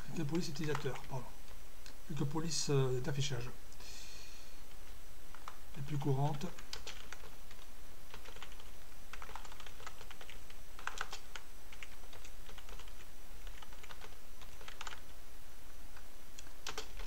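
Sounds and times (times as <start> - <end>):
keyboard typing: 0.5 - 1.2, 5.3 - 15.1, 15.9 - 17.0.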